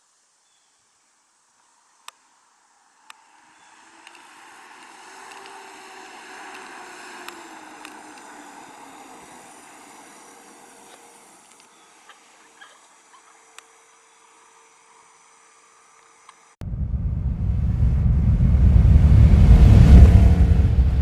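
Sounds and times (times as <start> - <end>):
car engine hum: 2.7 - 15.1, 16.6 - 21.0
tyre noise on asphalt: 2.9 - 13.2
faint ticks: 3.0 - 3.2, 4.0 - 5.6, 6.5 - 8.4, 10.9 - 13.8, 16.0 - 16.5.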